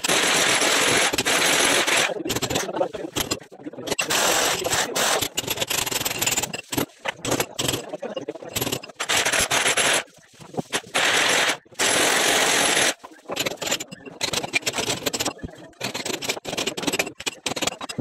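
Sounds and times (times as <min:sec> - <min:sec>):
electric hammer drill: 0:11.0 - 0:13.0.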